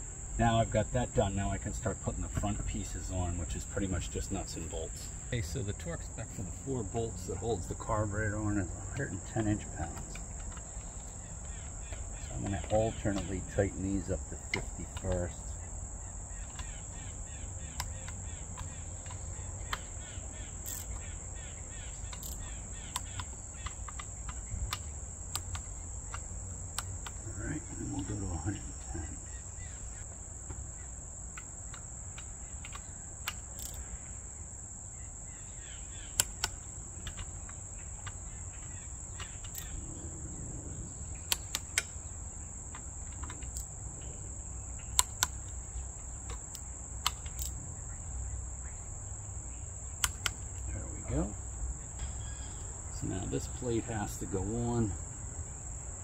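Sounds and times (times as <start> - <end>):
insects chirring: 0.0 - 56.0
torque wrench clicks: 20.6 - 21.1, 22.0 - 27.2, 31.7 - 33.9, 36.1 - 38.2, 41.3 - 42.0, 44.9 - 45.6, 50.0 - 50.6.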